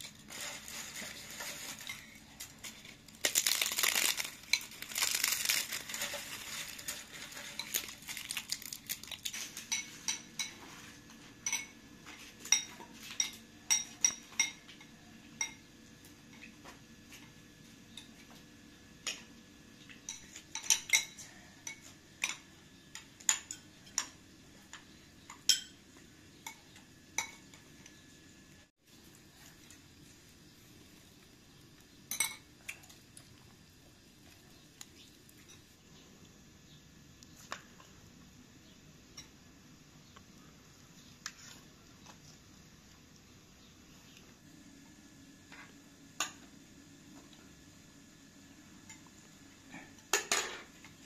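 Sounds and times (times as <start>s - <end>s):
metal utensils clinking on dishes: 11.4s - 11.8s, 20.0s - 22.4s, 25.3s - 25.8s, 50.1s - 50.7s.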